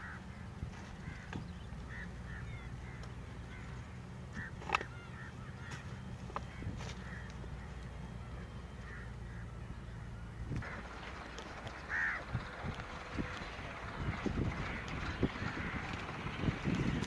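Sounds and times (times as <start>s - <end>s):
bird calls: 0.0s - 17.0s
low steady rumble: 0.0s - 17.0s.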